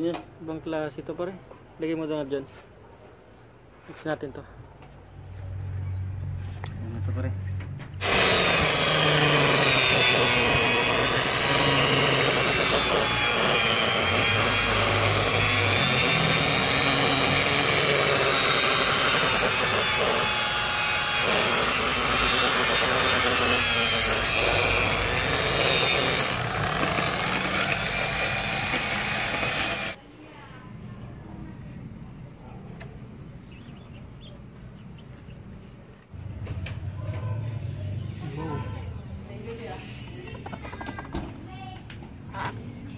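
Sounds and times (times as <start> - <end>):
electric polisher motor whine: 8.0 - 30.0.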